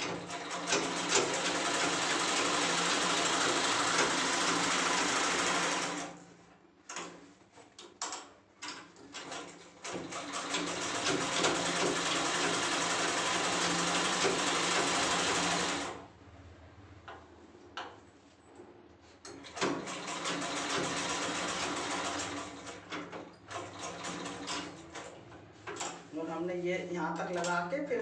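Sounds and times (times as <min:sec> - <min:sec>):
sewing machine stitching: 0:00.0 - 0:06.2, 0:09.1 - 0:16.0, 0:19.3 - 0:25.2.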